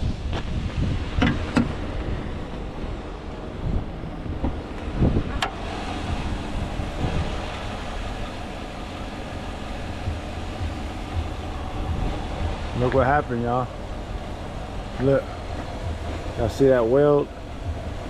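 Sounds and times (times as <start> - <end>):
low outdoor rumble: 0.0 - 18.0
wind rumbling on microphone: 0.0 - 18.0
truck hood opening click: 1.2 - 1.8.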